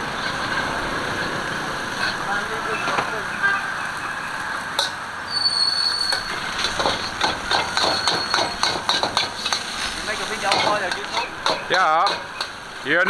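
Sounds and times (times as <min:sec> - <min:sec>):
steel ladle clanking against a wok: 0:06.1 - 0:12.7.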